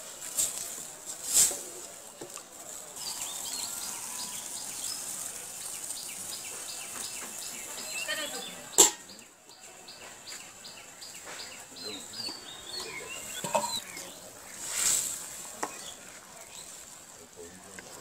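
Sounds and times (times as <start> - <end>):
curry simmering hiss: 0.0 - 18.0
small birds chirping: 2.6 - 18.0
metal lid clacking on pan: 8.8 - 9.0.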